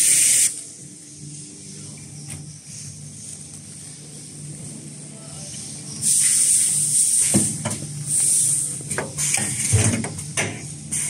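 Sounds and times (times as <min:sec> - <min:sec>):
compressed air hiss: 0:00.0 - 0:00.6, 0:06.0 - 0:09.9.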